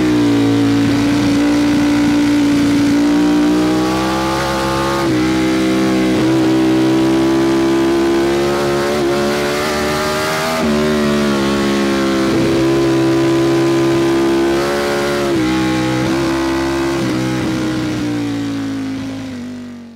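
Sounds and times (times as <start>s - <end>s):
motorcycle engine revving: 0.0s - 19.9s.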